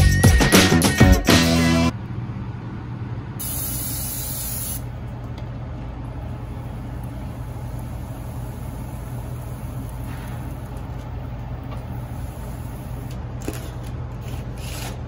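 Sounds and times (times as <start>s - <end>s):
intro music: 0.0s - 1.9s
steady low hum: 1.9s - 15.0s
cooking spray hissing: 3.4s - 4.9s, 6.4s - 11.0s, 11.8s - 13.1s.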